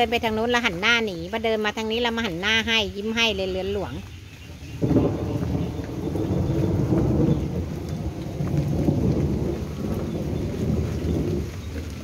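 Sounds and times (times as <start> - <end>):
rain: 0.0 - 12.0
thunder rumbling: 4.5 - 12.0.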